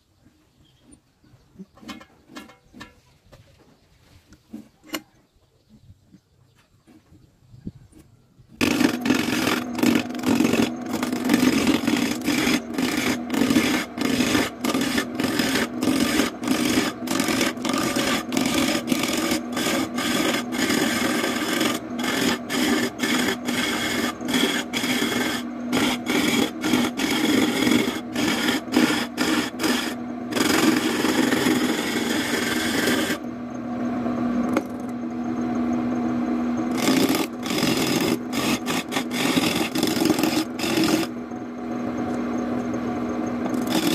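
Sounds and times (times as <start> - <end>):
chisel scraping wood: 8.6 - 33.2, 36.7 - 41.2, 43.4 - 43.9
wood lathe humming: 8.6 - 43.9.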